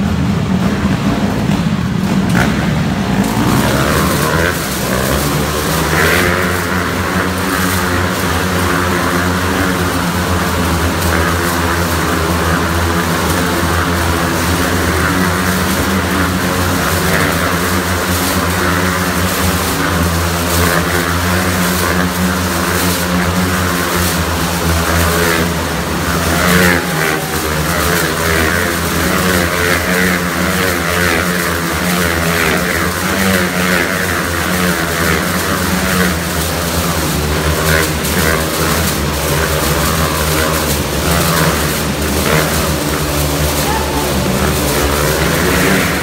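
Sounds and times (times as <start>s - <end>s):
motorcycle engines droning: 0.0s - 46.0s.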